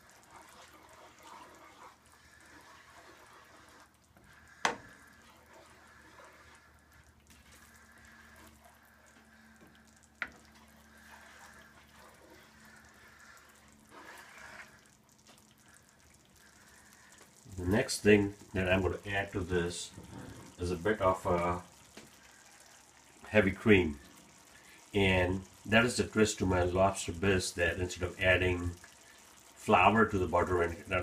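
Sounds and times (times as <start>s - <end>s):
spoon scraping a frying pan: 0.0s - 9.1s, 10.2s - 14.9s
sauce simmering and bubbling: 0.0s - 31.0s.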